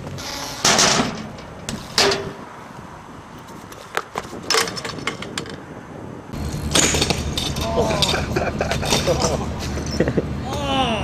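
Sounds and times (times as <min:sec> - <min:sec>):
bike tyres scraping: 0:00.0 - 0:10.2
bike and rider crashing on concrete: 0:00.2 - 0:02.4, 0:06.4 - 0:10.0.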